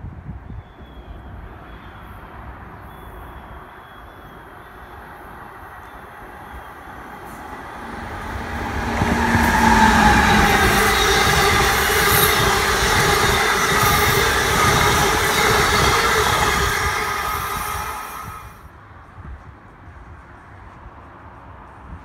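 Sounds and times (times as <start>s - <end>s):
wheels squealing on rail: 0.5s - 18.6s
electric train passing: 1.0s - 18.9s.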